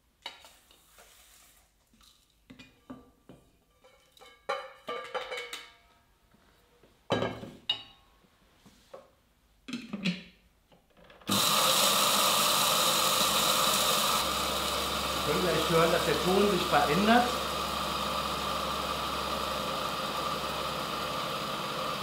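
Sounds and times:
chopper motor grinding: 11.3s - 22.0s.

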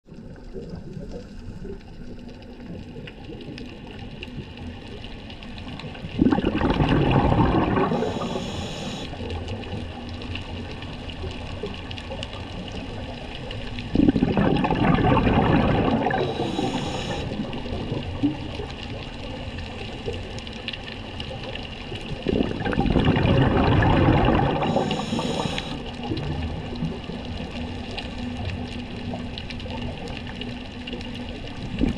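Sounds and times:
exhaled bubbles rushing: 0.1s - 31.9s
regulator hiss: 7.8s - 9.2s, 16.1s - 17.6s, 24.6s - 26.0s.

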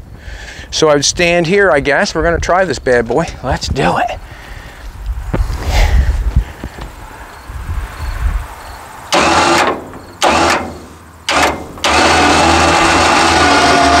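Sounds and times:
electric winch running: 9.1s - 14.0s.

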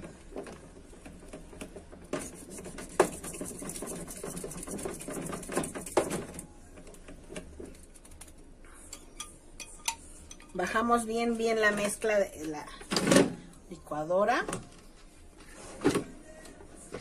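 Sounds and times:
whisk beating batter in bowl: 2.2s - 6.2s.

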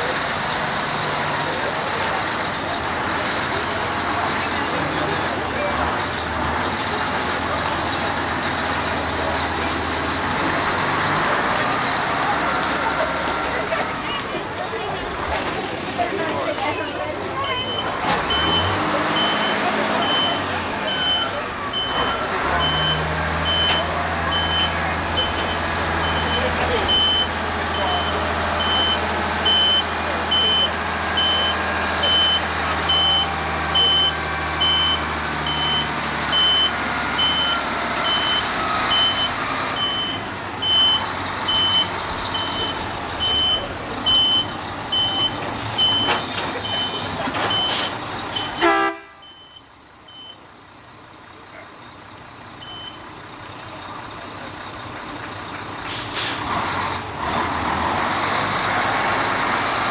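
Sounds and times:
diesel engine running: 0.0s - 59.9s
back-up alarm beeping: 22.6s - 46.1s, 49.2s - 50.4s, 52.6s - 53.0s
short hisses: 55.9s - 56.4s.

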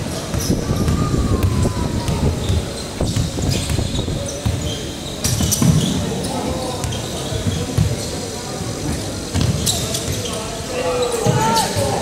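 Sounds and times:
sneakers squeaking: 0.0s - 12.0s
basketball bouncing on hardwood: 1.4s - 4.7s.

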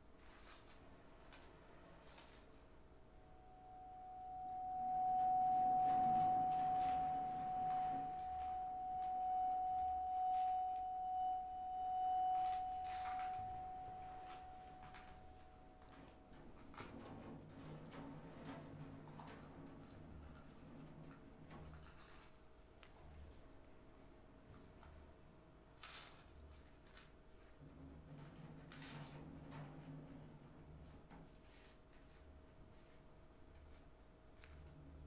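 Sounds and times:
bowed vibraphone note: 3.3s - 15.6s.

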